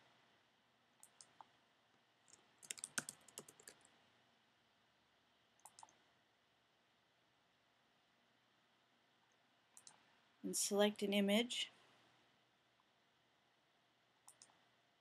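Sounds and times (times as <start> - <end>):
keyboard typing: 1.0 - 1.5, 2.3 - 3.9, 5.6 - 6.0, 9.8 - 10.0, 14.2 - 14.6
mouse clicks: 1.0 - 1.5, 5.6 - 6.0, 9.7 - 10.0, 14.2 - 14.6.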